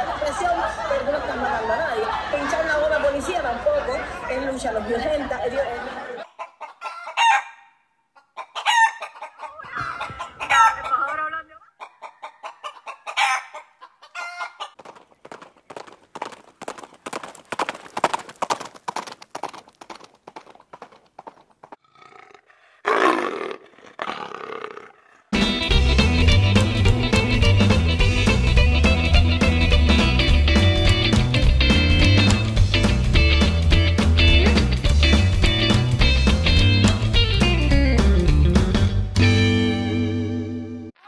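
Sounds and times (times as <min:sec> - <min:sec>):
chickens clucking: 0:06.2 - 0:07.5, 0:08.1 - 0:15.4
rooster crowing: 0:06.8 - 0:07.7, 0:08.5 - 0:11.3, 0:12.1 - 0:14.8.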